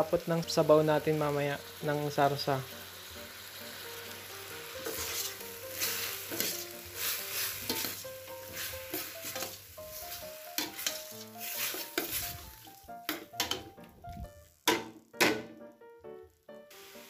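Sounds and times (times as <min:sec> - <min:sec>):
meat sizzling in oil: 0:00.0 - 0:15.3, 0:16.6 - 0:17.0
metal spoon scraping pot: 0:07.6 - 0:08.0.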